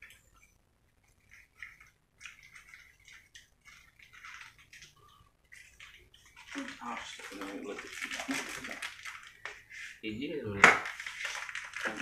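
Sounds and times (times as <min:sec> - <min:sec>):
chewing and slurping: 0:01.1 - 0:09.7.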